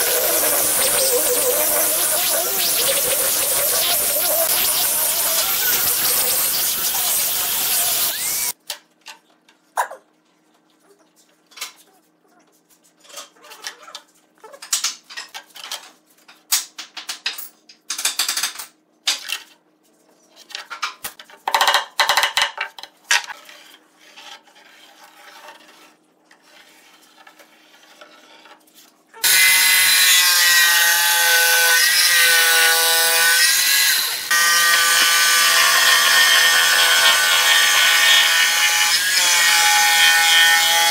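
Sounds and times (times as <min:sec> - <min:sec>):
angle grinder sanding wood: 0:00.0 - 0:08.6, 0:29.2 - 0:40.9
electric jigsaw cutting wood: 0:00.0 - 0:08.6, 0:29.2 - 0:40.9.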